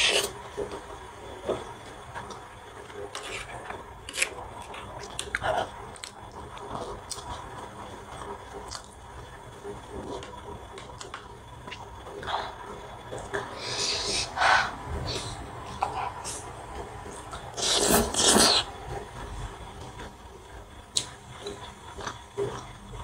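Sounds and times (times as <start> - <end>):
close chewing of crunchy snack: 3.1 - 7.5, 17.5 - 18.7.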